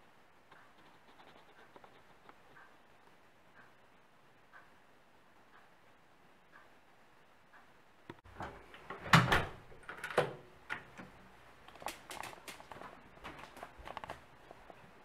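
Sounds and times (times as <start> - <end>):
wall clock ticking: 0.4 - 8.3.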